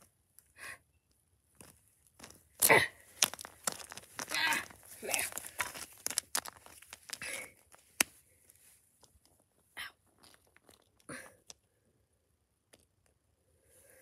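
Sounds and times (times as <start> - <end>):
scraping rustles: 3.0 - 8.8
plastic toys clicking on concrete: 3.2 - 8.2, 10.1 - 11.7.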